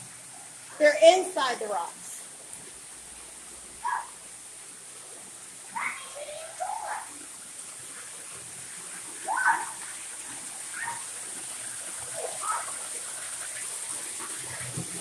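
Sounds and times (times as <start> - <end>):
waterfall trickling into a pool: 0.0 - 15.0
high-pitched vocal calls: 10.7 - 11.1.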